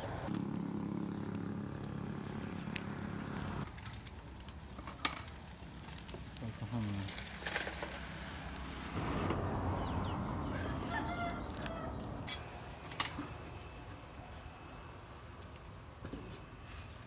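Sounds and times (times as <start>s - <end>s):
rooster crowing: 10.1s - 12.4s.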